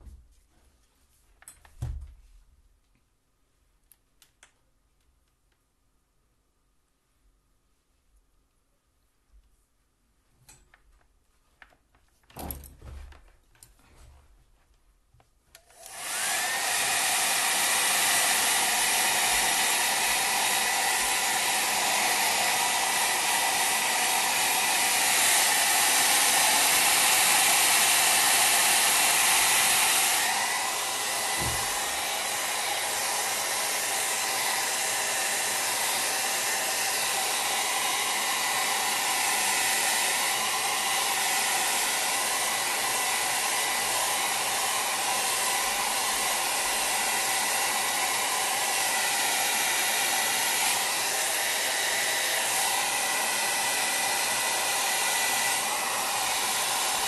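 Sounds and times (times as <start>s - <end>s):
hair dryer blowing: 15.6s - 57.0s.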